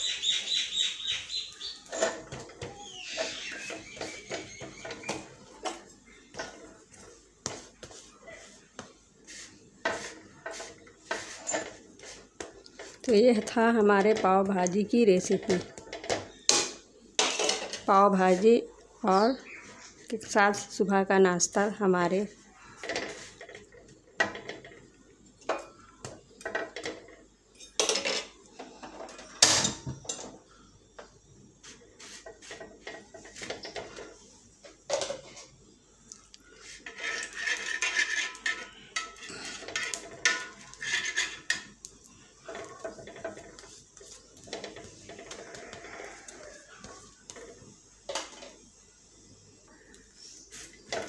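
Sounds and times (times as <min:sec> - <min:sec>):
metal kitchen utensils clinking: 0:15.2 - 0:17.9, 0:36.8 - 0:41.8.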